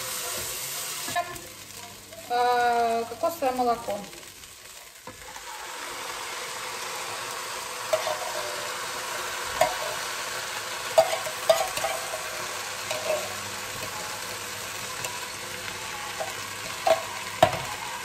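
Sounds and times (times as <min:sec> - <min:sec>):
food sizzling in a pot: 0:00.0 - 0:18.0
spoon clinking and scraping tin: 0:07.9 - 0:08.7, 0:11.0 - 0:14.0.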